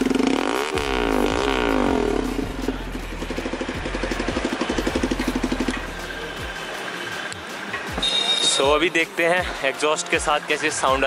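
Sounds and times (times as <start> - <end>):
motorcycle engine revving and idling: 0.0 - 6.8.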